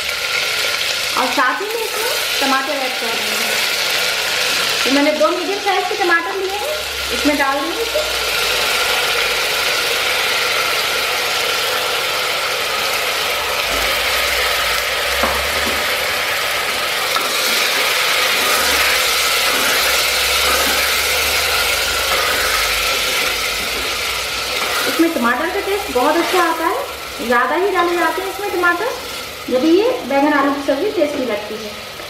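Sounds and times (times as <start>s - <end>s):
tomatoes sizzling in hot oil: 0.0s - 32.0s
spatula stirring and scraping: 17.1s - 26.8s.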